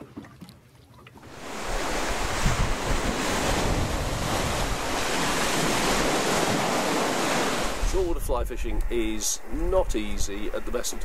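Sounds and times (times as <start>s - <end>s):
surf breaking over rocks: 1.2s - 8.2s
wind buffeting microphone: 1.3s - 11.0s.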